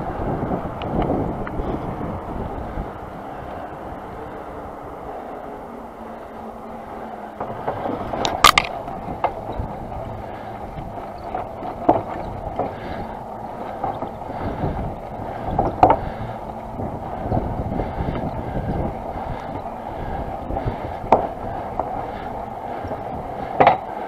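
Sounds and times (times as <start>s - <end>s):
bike tyre hiss and rushing air: 0.0s - 11.2s
bike rattling knocks: 7.4s - 24.0s.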